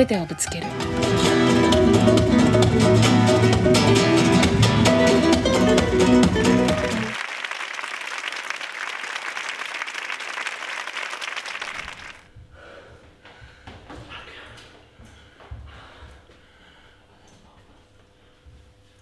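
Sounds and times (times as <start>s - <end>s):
plucked guitar-like music: 0.5s - 7.2s
audience applause: 6.4s - 12.3s.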